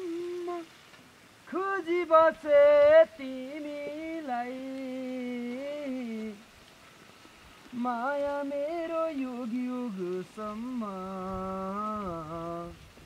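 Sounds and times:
person humming: 0.0s - 0.7s.

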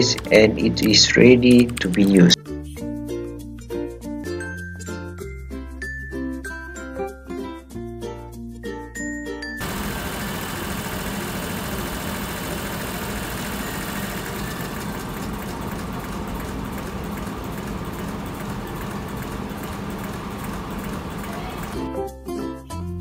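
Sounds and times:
electric motor humming and whirring: 9.6s - 21.8s.

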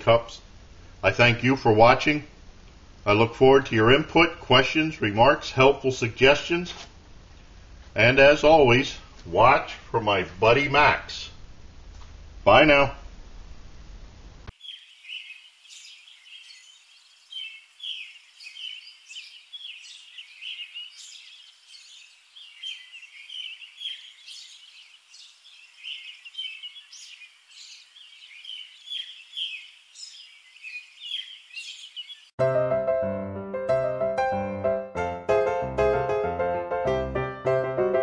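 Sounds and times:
small birds chirping: 14.5s - 32.4s.

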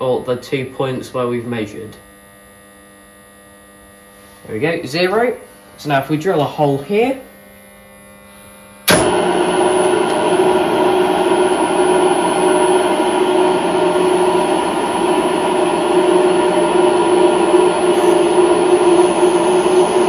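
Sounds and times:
milling machine humming: 1.9s - 20.0s
drill cutting metal plate: 8.9s - 20.0s.

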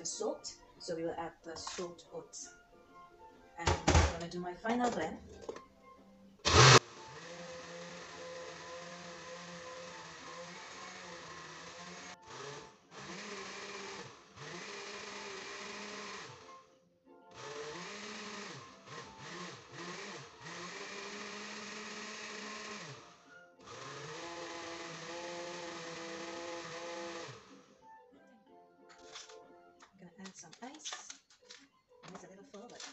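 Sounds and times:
blender motor: 6.4s - 16.7s, 17.3s - 27.8s.

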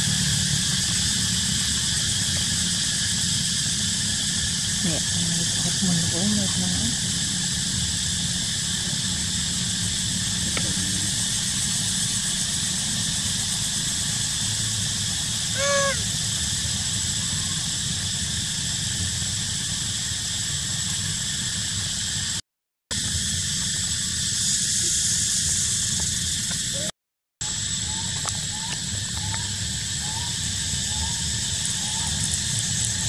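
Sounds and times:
short high squeal: 15.5s - 16.1s.

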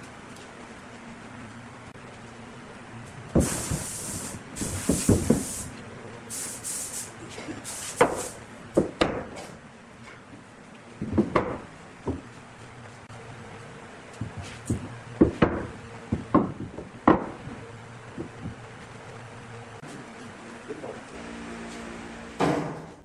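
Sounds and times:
wood knocking on wood: 11.0s - 12.3s, 14.2s - 17.6s, 18.2s - 18.6s.

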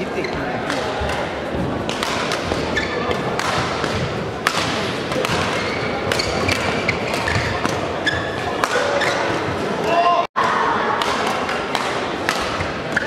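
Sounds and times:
rackets striking shuttlecock: 1.9s - 9.4s, 11.0s - 13.0s
shoes squeaking on court: 2.6s - 3.2s, 5.5s - 9.6s.

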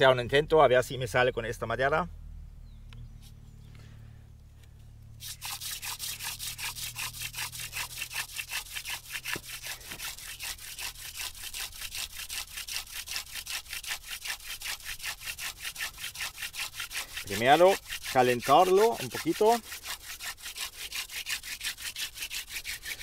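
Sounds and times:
wood rubbing on wood: 5.2s - 23.0s.

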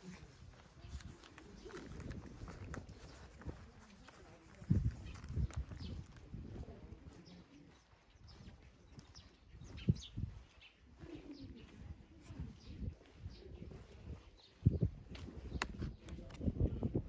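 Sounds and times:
birds chirping: 0.0s - 17.0s
dull footsteps: 0.0s - 17.0s.

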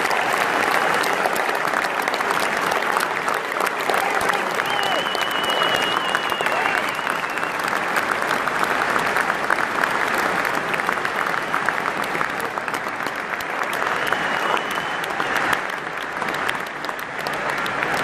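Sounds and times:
stadium crowd applauding: 0.0s - 18.0s
short thin whistle: 4.7s - 7.6s.

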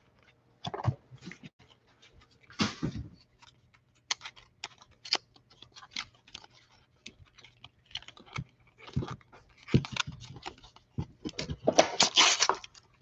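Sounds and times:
foil pack crinkling and tearing: 11.7s - 13.0s.

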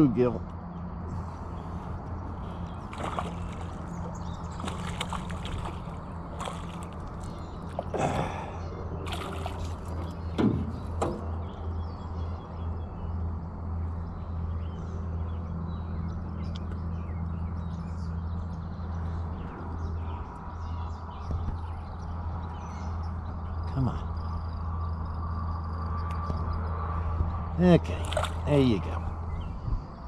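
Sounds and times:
steady low hum: 0.0s - 30.0s
water splashing and trickling: 1.2s - 11.4s, 27.6s - 29.3s.

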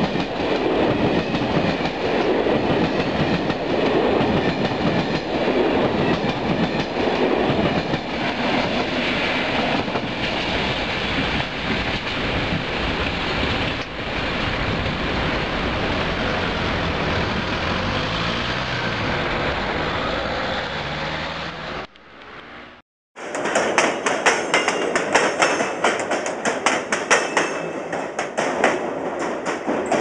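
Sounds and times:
train rumbling past: 0.0s - 30.0s
train wheels clacking over rail joints: 23.2s - 30.0s.

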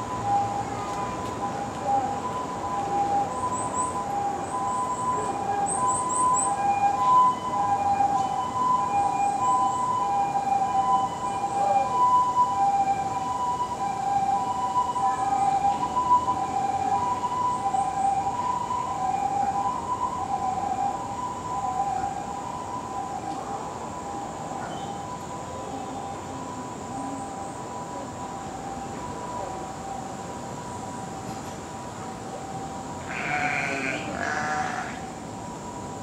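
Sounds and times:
two-tone ambulance siren: 0.0s - 36.0s.

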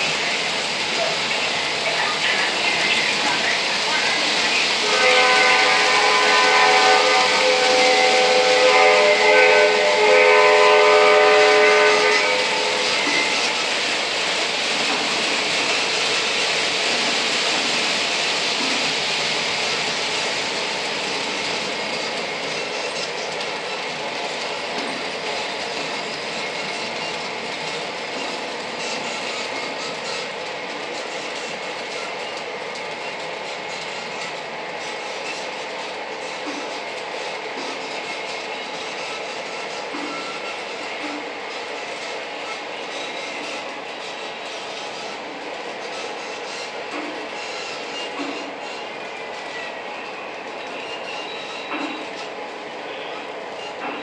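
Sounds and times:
electronic train horn: 4.8s - 13.7s.

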